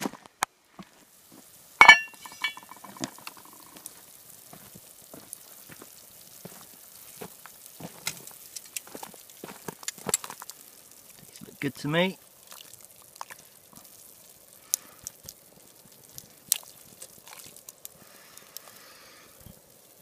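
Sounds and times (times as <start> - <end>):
water boiling: 0.7 - 20.0
cast-iron lid clanking: 1.8 - 3.3.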